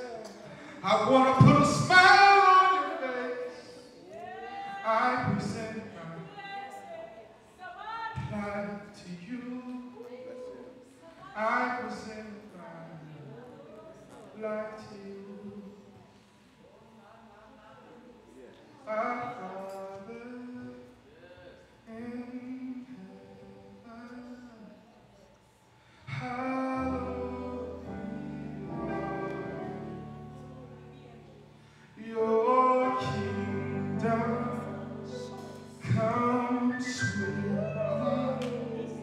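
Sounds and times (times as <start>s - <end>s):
person singing softly: 32.0s - 39.0s
choir singing: 32.4s - 39.0s.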